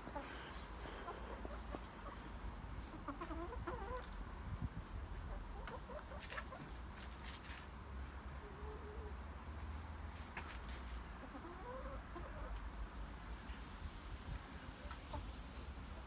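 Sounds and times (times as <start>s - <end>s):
chickens clucking: 0.0s - 7.4s, 10.4s - 13.0s, 14.3s - 16.0s.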